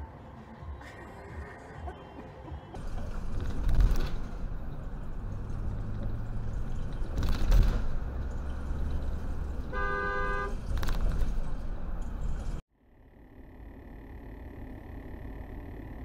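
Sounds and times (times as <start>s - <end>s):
truck road and engine noise: 0.0s - 16.0s
two-note vehicle horn: 9.7s - 10.6s.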